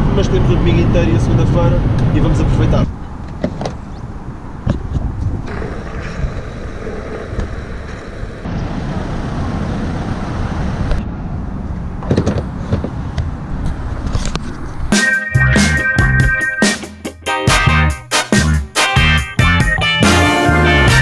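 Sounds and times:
road traffic rumble: 0:00.0 - 0:15.8.

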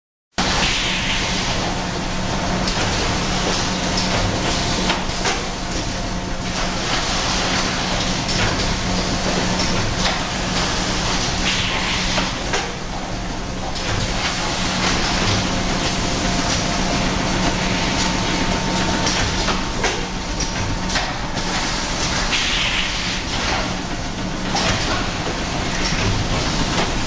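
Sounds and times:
conveyor noise: 0:00.4 - 0:27.0
machine hum: 0:00.4 - 0:27.0
mechanical clacks and knocks: 0:17.4 - 0:23.7, 0:24.5 - 0:27.0.

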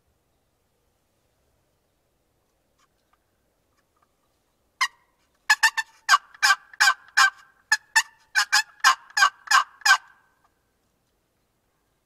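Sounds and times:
turkey yelping: 0:04.8 - 0:10.3.

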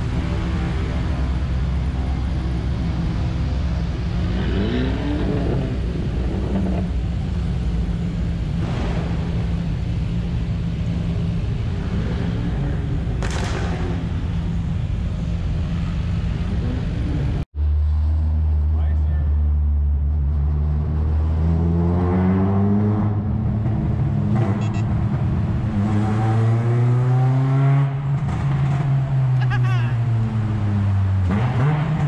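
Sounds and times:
car engines idling: 0:00.0 - 0:21.2.

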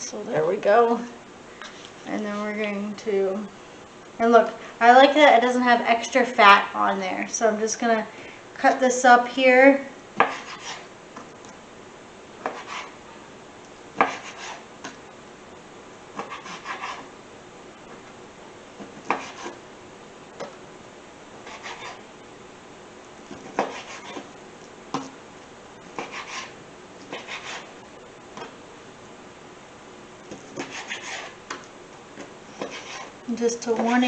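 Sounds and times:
knife cutting on cutting board: 0:10.2 - 0:10.8, 0:12.4 - 0:12.9, 0:14.0 - 0:14.6, 0:16.2 - 0:17.1, 0:19.0 - 0:19.6, 0:21.4 - 0:22.0, 0:23.4 - 0:24.3, 0:26.0 - 0:27.7, 0:30.3 - 0:31.4, 0:32.6 - 0:33.1.

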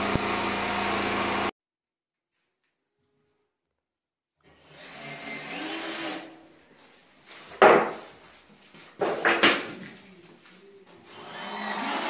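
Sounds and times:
small power tool whirring: 0:04.4 - 0:06.4, 0:11.0 - 0:12.0
knocks on wood: 0:07.6 - 0:08.0.

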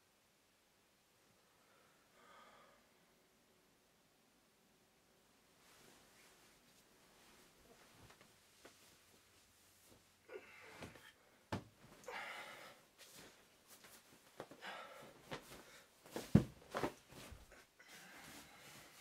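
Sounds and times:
clothing rustling: 0:05.6 - 0:12.1, 0:12.9 - 0:19.0.

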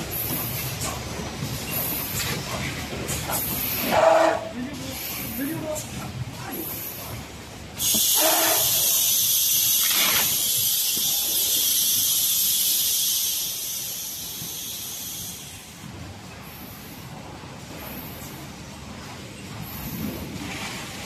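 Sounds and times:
compressed air hissing: 0:07.8 - 0:15.7.

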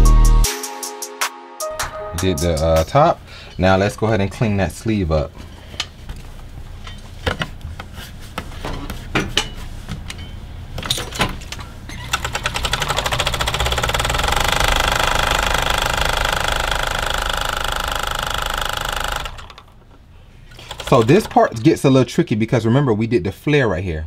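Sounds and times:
sharp clicks and knocks: 0:10.8 - 0:20.0, 0:20.6 - 0:21.7
serger stitching: 0:12.0 - 0:19.8, 0:20.5 - 0:21.7.

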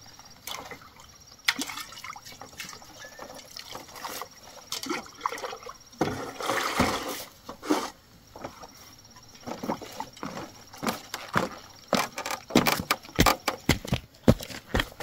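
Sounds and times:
footsteps on bamboo raft: 0:09.4 - 0:15.0.

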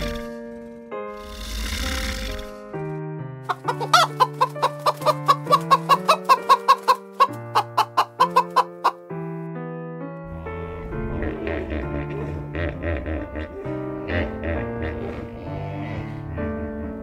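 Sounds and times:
background music: 0:00.0 - 0:17.0
hens clucking: 0:03.5 - 0:09.0.

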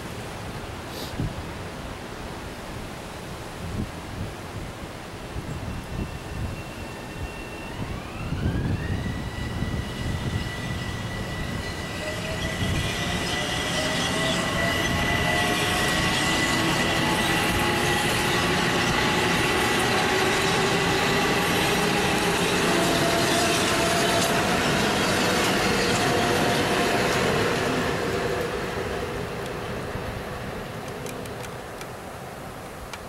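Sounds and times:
high steady squeal: 0:05.5 - 0:30.8
train wheels rumbling on rail: 0:05.5 - 0:32.0
motor whines falling in pitch: 0:06.0 - 0:20.2.

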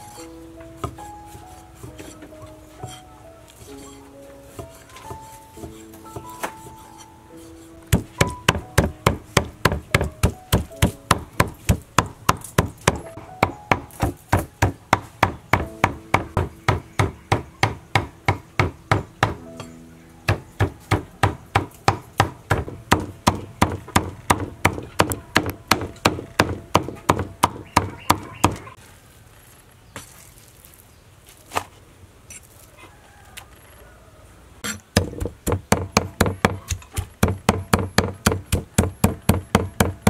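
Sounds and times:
soft background music: 0:00.0 - 0:28.8
cleaver chopping meat on wood: 0:04.5 - 0:06.9, 0:07.9 - 0:19.5, 0:20.3 - 0:28.7, 0:34.6 - 0:40.0.

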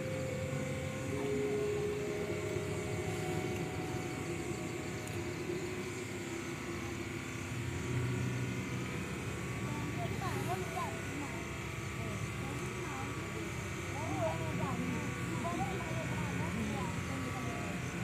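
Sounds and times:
faint held tones: 0:00.0 - 0:18.0
low mechanical drone: 0:00.0 - 0:18.0.

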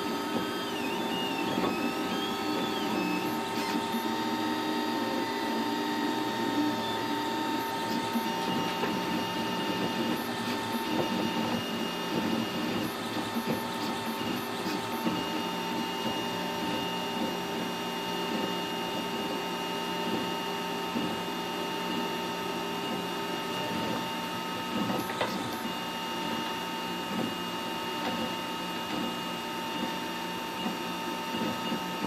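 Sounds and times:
stepper motors whining: 0:00.0 - 0:15.5.

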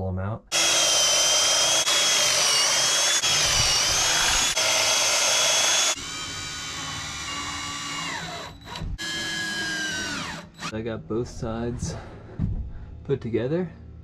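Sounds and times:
cordless drill boring holes: 0:00.5 - 0:10.7
cordless drill driving screws: 0:00.5 - 0:10.7.

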